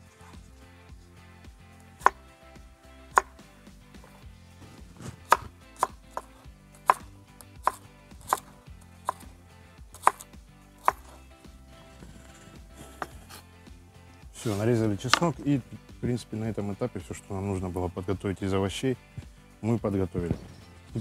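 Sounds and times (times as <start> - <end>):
knife chopping on wooden board: 1.9 - 2.2, 3.1 - 3.4, 4.0 - 9.3, 9.9 - 11.2, 11.9 - 13.4, 14.4 - 15.4.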